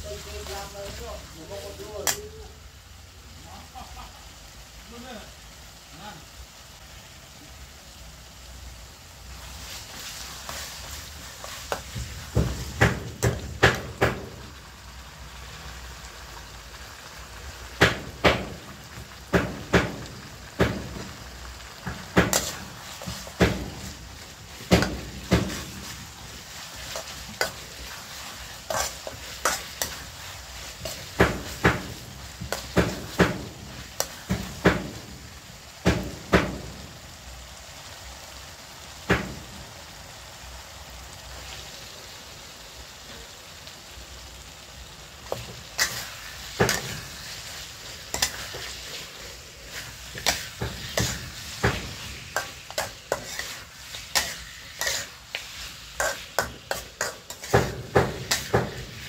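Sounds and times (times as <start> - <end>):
oil sizzling: 0.0 - 59.0
ladle scraping wok: 9.3 - 14.5, 17.8 - 36.5, 45.2 - 59.0.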